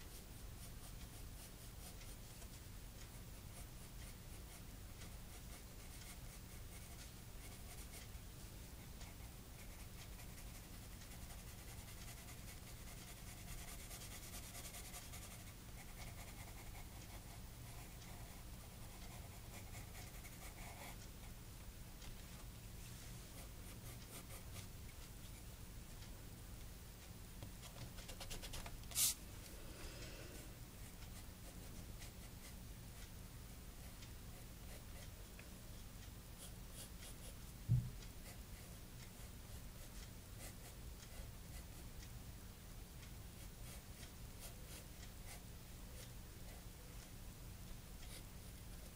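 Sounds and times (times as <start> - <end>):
pencil scratching on paper: 0.0 - 2.5, 3.5 - 8.1, 9.0 - 21.0
sharp tap: 37.7 - 38.0.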